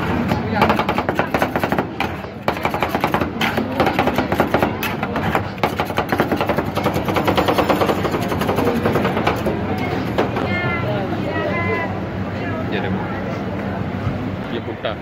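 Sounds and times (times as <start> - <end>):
metal spatulas chopping on steel plate: 0.1 - 10.4.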